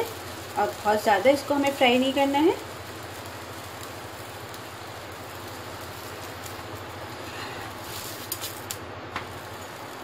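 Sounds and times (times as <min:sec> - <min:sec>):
flatbread hissing on hot pan: 0:00.0 - 0:10.0.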